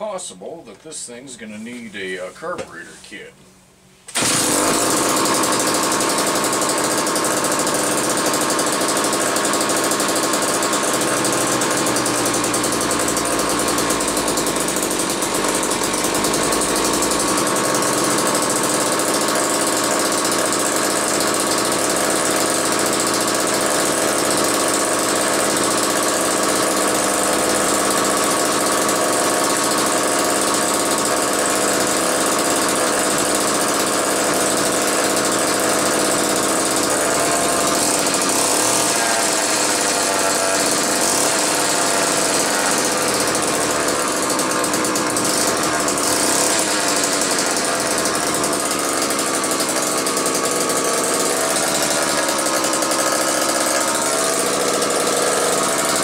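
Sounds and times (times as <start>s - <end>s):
chainsaw engine running: 4.1s - 56.0s.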